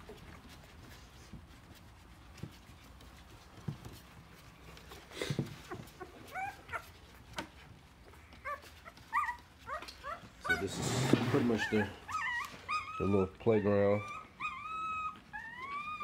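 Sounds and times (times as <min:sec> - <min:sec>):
puppies squeaking and whimpering: 0:04.4 - 0:16.0.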